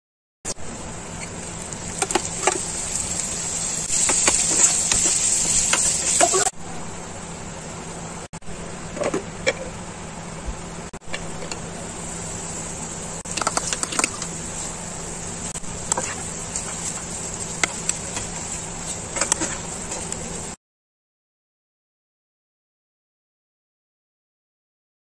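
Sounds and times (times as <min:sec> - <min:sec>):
frying hiss: 0:00.5 - 0:08.8, 0:10.9 - 0:20.6
spatula scraping frying pan: 0:03.9 - 0:06.5, 0:15.9 - 0:20.2.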